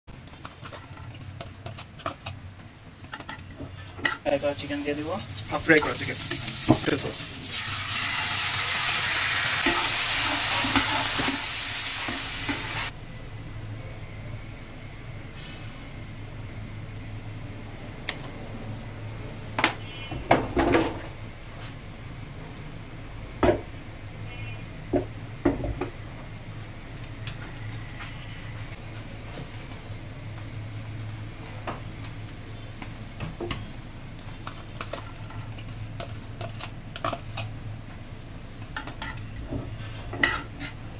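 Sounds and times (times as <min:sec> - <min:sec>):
cooktop low hum: 0:00.1 - 0:40.9
oil sizzling: 0:04.0 - 0:12.9
spatula scraping frying pan: 0:39.0 - 0:40.9.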